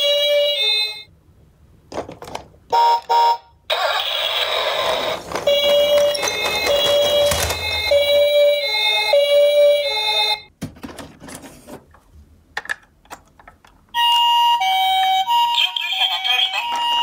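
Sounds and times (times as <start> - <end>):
toy ambulance siren: 2.8 - 10.5, 14.0 - 17.0
electronic toy siren tone: 3.7 - 10.5
toy cars clattering in box: 5.2 - 7.9.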